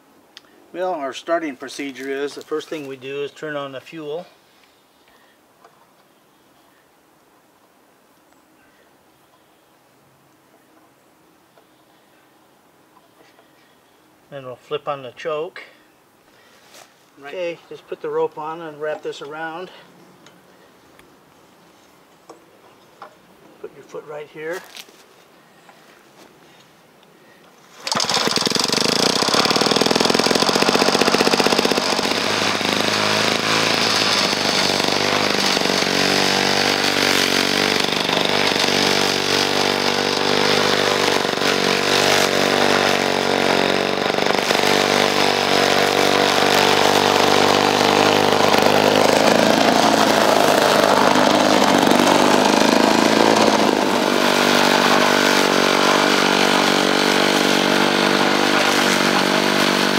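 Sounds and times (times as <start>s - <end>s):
lawnmower engine running: 27.7s - 59.9s.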